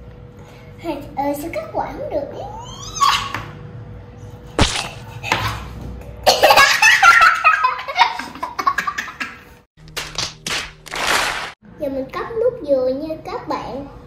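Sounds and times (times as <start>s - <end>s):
young child laughing: 6.3s - 9.5s.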